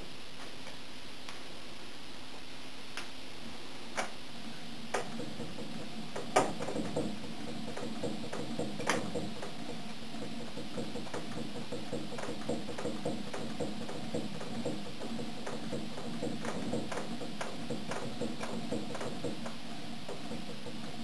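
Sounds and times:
soft uneven ticking rattle: 4.9s - 21.0s.

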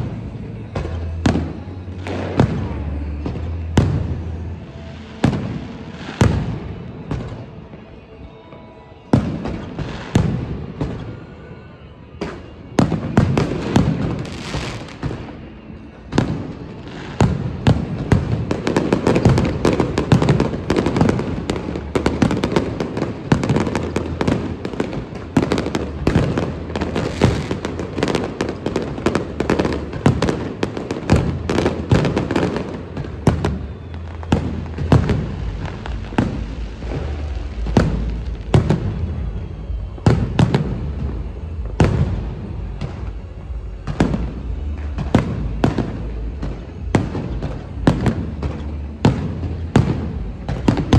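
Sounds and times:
fireworks bangs and cracks: 0.0s - 50.9s.

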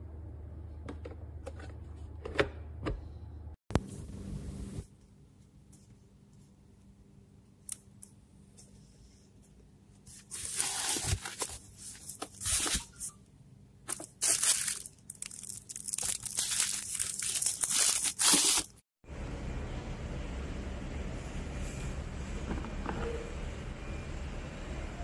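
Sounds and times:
packaging tearing and crinkling: 13.9s - 18.8s.

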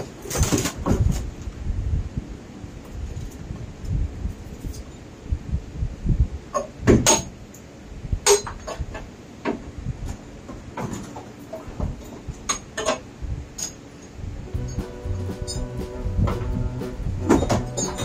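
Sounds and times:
metal tools clanking on steel: 6.6s - 9.1s, 17.3s - 18.0s.

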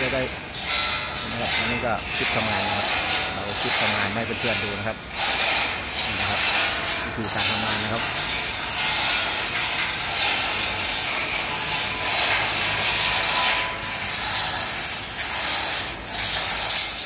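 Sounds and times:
hoist chain rattling: 0.0s - 17.0s.

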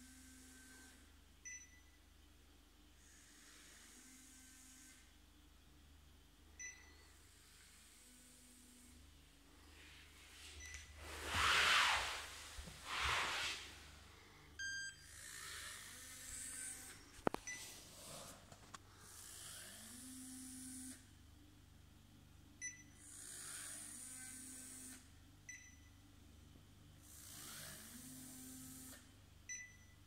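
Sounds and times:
faint steady hum: 0.0s - 23.2s
soft hissy swells: 9.7s - 14.1s.

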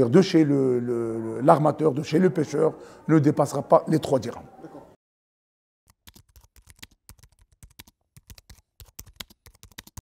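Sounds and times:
keyboard typing clicks: 5.9s - 10.0s.

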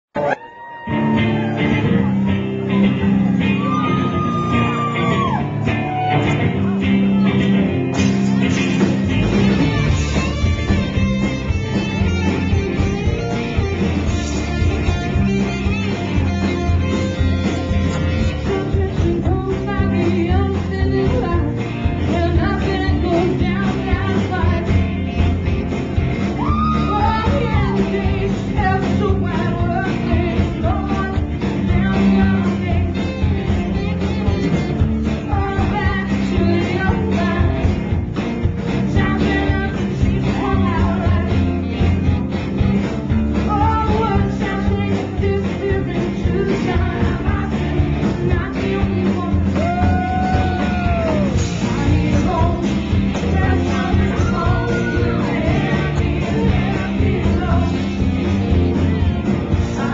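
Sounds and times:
drum kit: 0.1s - 59.9s
live rock band playing: 0.1s - 59.9s
electric guitars: 0.2s - 59.9s
lead vocals: 18.1s - 25.2s, 26.3s - 33.9s, 35.2s - 38.1s, 38.7s - 41.8s, 43.4s - 59.9s.

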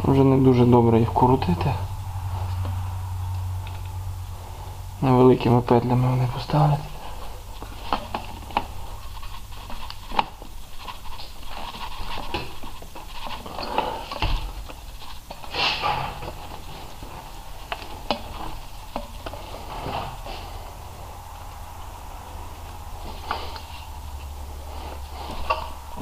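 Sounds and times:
low steady hum: 0.0s - 26.0s
hose handling clicks and rustles: 7.6s - 20.5s.

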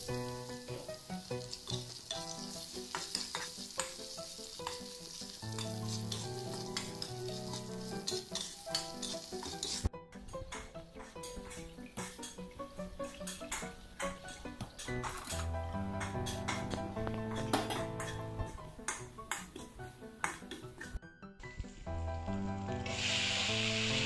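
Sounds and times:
food sizzling in a wok: 0.0s - 9.9s, 22.4s - 24.0s
background music: 0.0s - 24.0s
metal spatula scraping a wok: 1.5s - 4.0s, 4.6s - 9.9s.

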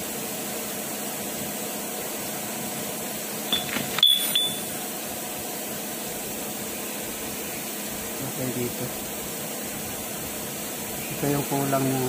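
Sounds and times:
steady background hum: 0.0s - 12.0s
steel shafts clinking: 3.5s - 4.8s.

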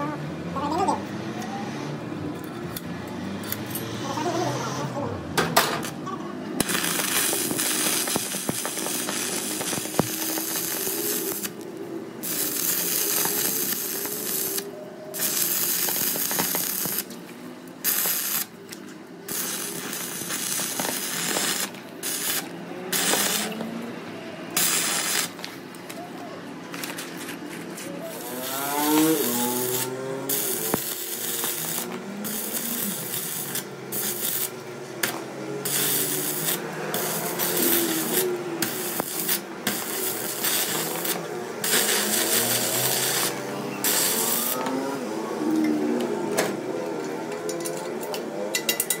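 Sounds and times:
welding arc crackling and hissing: 6.6s - 23.8s, 24.5s - 25.6s, 26.7s - 44.7s.

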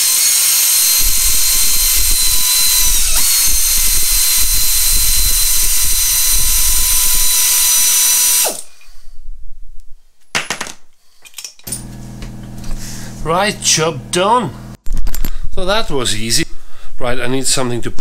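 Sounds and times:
pneumatic air ratchet running: 0.0s - 8.7s
hiss of exhaust air: 12.7s - 13.3s.

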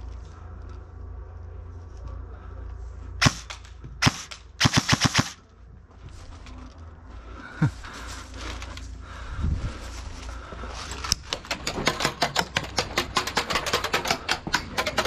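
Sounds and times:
airsoft rifle firing: 3.2s - 5.4s.

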